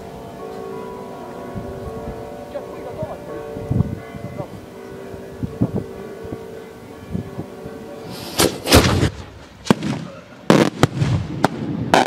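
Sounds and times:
distant fireworks thumping: 0:08.1 - 0:12.0.

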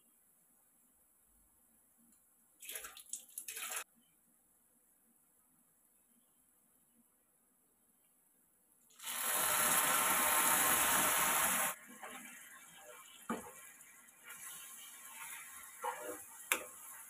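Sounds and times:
milk splashing and sizzling in pan: 0:08.9 - 0:17.0
metal ladle scraping a pan: 0:14.2 - 0:16.7.

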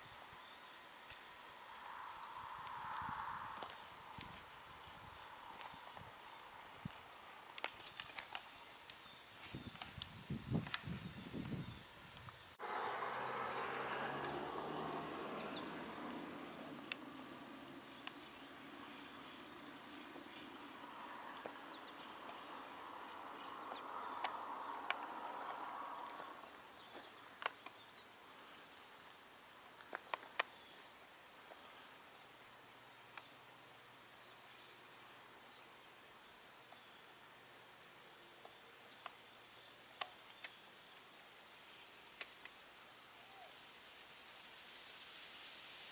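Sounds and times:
pulsing insect chorus: 0:00.0 - 0:45.9
low rushing noise: 0:12.6 - 0:17.4.

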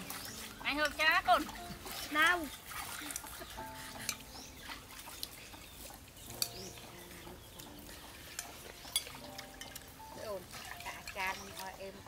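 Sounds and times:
metal spoons clinking in bowls: 0:07.8 - 0:11.8.

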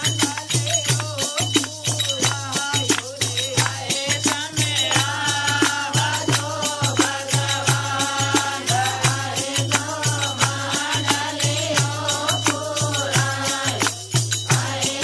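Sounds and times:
hand drum beating: 0:00.0 - 0:15.0
jingling hand percussion: 0:00.0 - 0:15.0
voices singing devotional song: 0:00.0 - 0:15.0.

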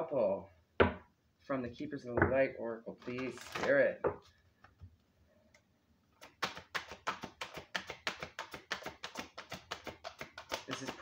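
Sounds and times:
cards being shuffled: 0:02.9 - 0:03.9, 0:06.2 - 0:11.0.

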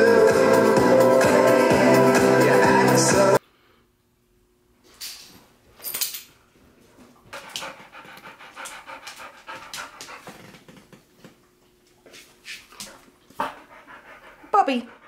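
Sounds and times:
dog panting: 0:07.2 - 0:10.9, 0:12.7 - 0:15.0.

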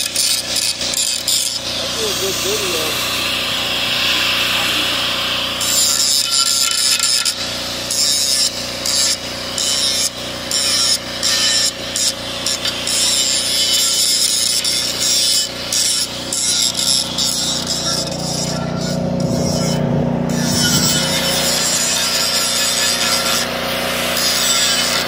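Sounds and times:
angle grinder grinding steel: 0:00.0 - 0:25.0
motor humming: 0:01.4 - 0:08.0, 0:15.6 - 0:25.0.

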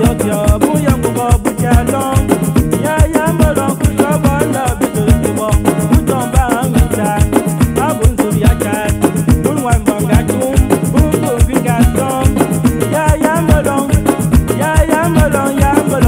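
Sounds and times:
upbeat dance music: 0:00.0 - 0:16.0.

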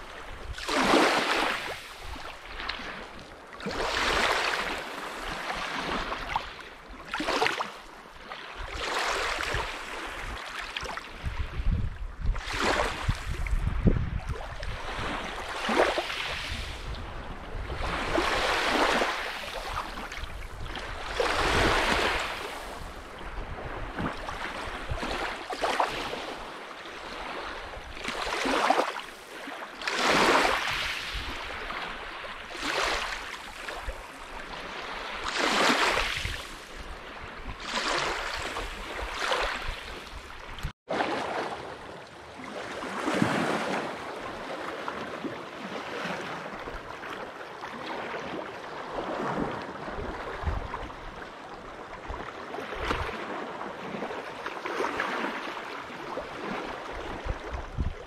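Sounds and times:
waves washing onto shore: 0:00.0 - 0:58.0.

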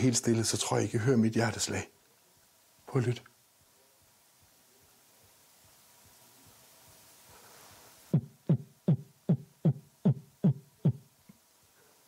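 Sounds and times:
fast heartbeat thumps: 0:08.1 - 0:11.0.

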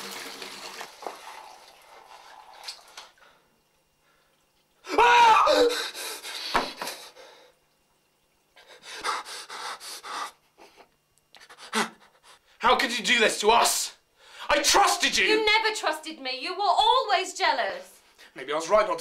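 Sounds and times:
man gasping for air: 0:05.5 - 0:07.5
man panting heavily: 0:05.5 - 0:07.5, 0:08.6 - 0:12.6.

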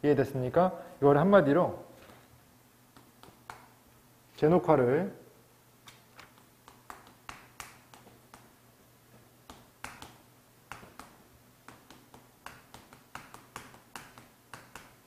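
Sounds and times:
chalk tapping on chalkboard: 0:02.9 - 0:03.8, 0:06.2 - 0:08.6, 0:09.4 - 0:15.0.

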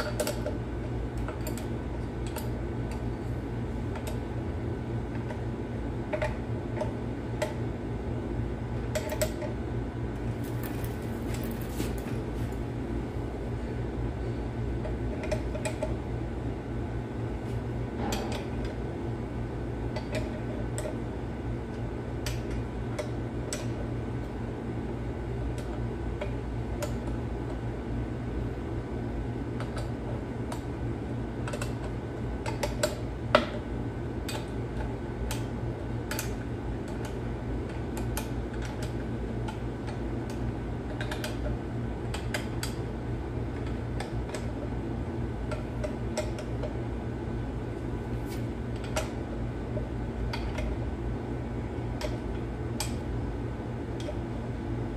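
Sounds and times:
fan hum: 0:00.0 - 0:54.9.

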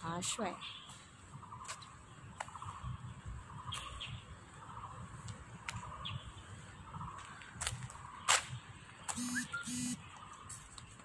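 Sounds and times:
high bird chirps: 0:08.1 - 0:10.7
bird rapid trill: 0:09.1 - 0:10.1.

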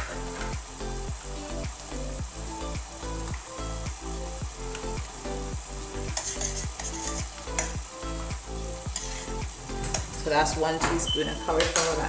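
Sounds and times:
sauce sizzling in saucepan: 0:00.0 - 0:12.0
spoon scraping pan: 0:06.2 - 0:07.8, 0:08.9 - 0:10.1.

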